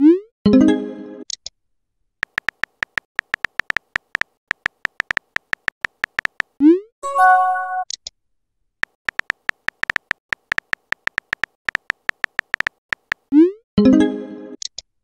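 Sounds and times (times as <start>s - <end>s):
keyboard tap clicks: 2.2s - 6.5s, 8.8s - 13.2s.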